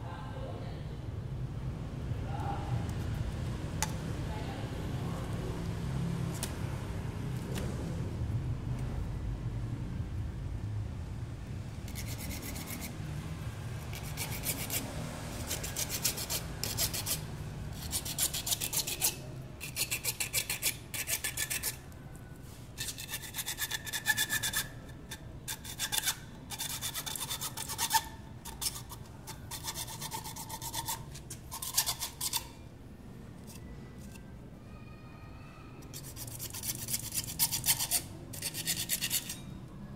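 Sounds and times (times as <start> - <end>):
hacksaw cutting plastic pipe: 13.9 - 17.2, 17.8 - 21.8, 22.8 - 32.6, 35.9 - 39.4.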